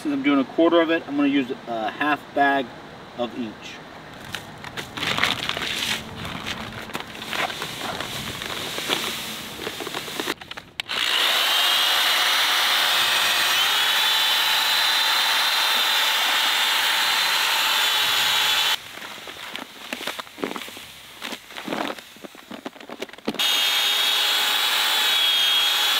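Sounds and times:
paper bag rustling: 4.2 - 10.8, 18.8 - 23.4
drill with paddle mixer: 10.8 - 18.8, 23.4 - 25.9.

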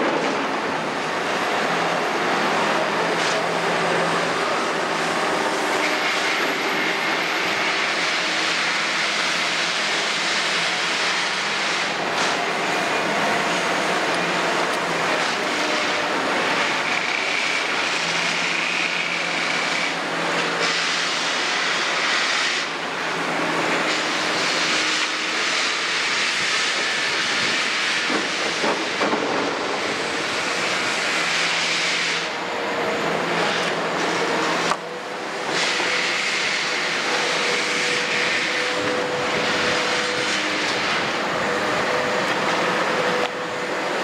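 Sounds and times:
excavator diesel engine under load: 0.0 - 22.1, 32.2 - 44.0
hydraulic whine: 0.0 - 44.0.

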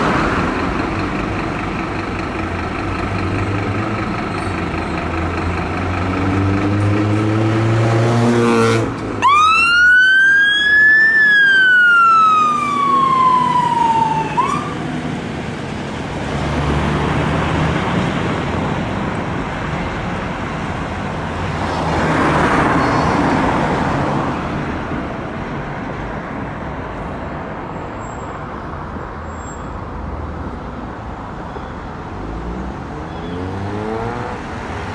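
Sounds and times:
passing traffic: 0.0 - 34.9
siren wailing: 9.2 - 14.9.

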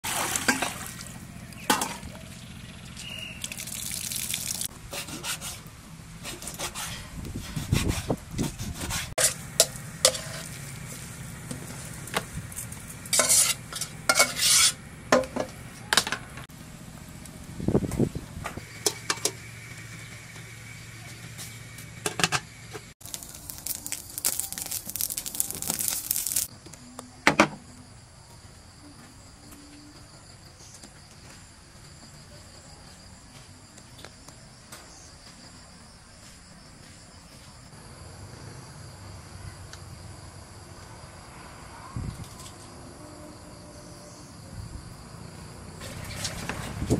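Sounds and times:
metal pot and utensils clinking: 9.2 - 10.5, 13.1 - 15.4
food being stirred: 23.0 - 26.5.

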